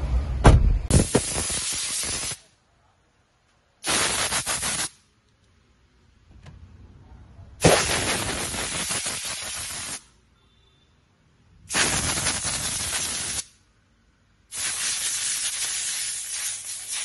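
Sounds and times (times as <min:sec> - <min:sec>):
compressed air blow gun hissing: 0:00.9 - 0:02.4, 0:07.6 - 0:10.0, 0:11.7 - 0:13.6, 0:14.5 - 0:17.0.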